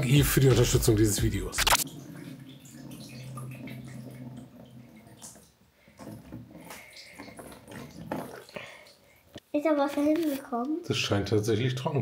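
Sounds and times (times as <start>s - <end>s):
water pouring into plastic box: 0.0s - 9.3s
water dripping: 0.0s - 9.4s.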